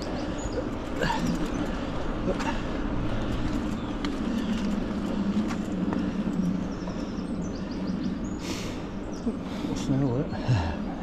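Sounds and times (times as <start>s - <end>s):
bike tyres rolling on trail: 0.0s - 10.7s.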